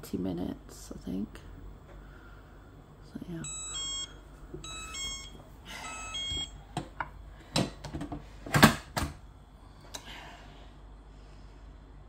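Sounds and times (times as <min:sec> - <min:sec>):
touch panel beeps: 0:03.4 - 0:06.6.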